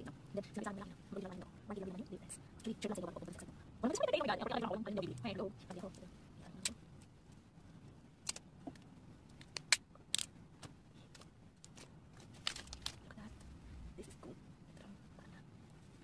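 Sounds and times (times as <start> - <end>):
plastic film tearing and crackling: 11.6 - 13.1.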